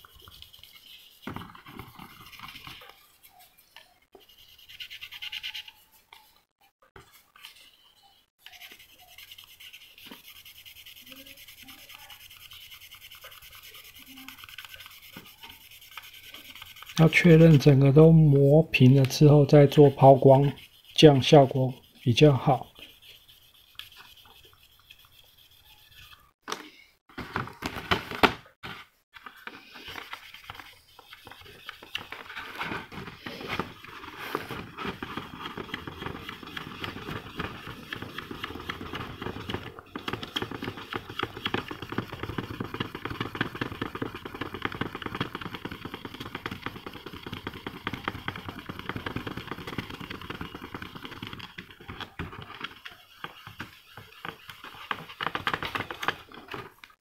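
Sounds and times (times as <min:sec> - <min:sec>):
sanding pad scratching: 0:00.0 - 0:06.3, 0:08.4 - 0:26.4, 0:29.2 - 0:56.6
knocks and handling noises: 0:01.2 - 0:03.0, 0:26.4 - 0:57.0.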